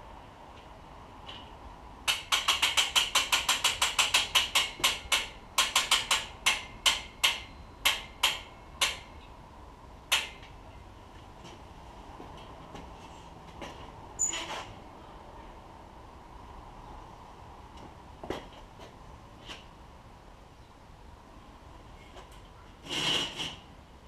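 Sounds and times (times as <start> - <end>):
ratchet clicks: 2.1 - 9.0.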